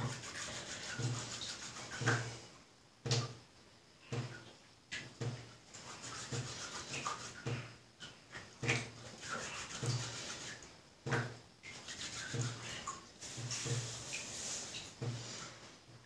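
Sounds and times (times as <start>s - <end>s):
hands rubbing plant material: 0.0s - 2.2s, 5.8s - 7.6s, 9.1s - 10.6s, 11.7s - 15.7s.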